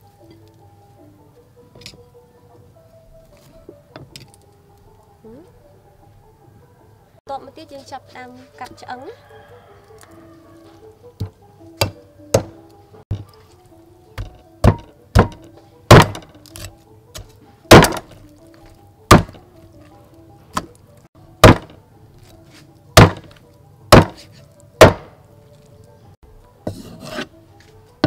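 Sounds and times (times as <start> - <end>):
soft background music: 0.0 - 28.0
cleaver chopping on wooden block: 11.2 - 13.3, 14.2 - 18.2, 19.1 - 19.4, 21.4 - 21.8, 23.0 - 25.1.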